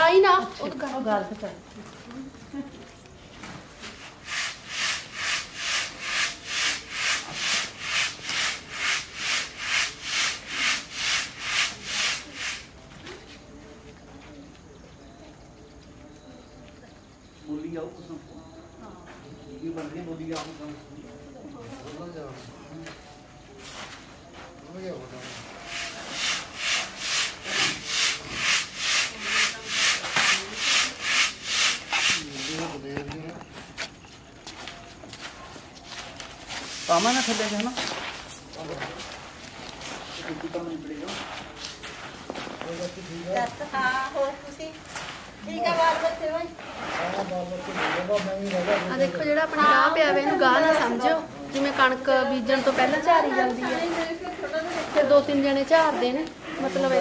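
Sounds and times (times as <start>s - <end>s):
grain swishing in a sieve: 3.9s - 12.7s, 25.2s - 32.7s, 36.6s - 38.4s, 46.6s - 49.2s, 51.7s - 57.0s.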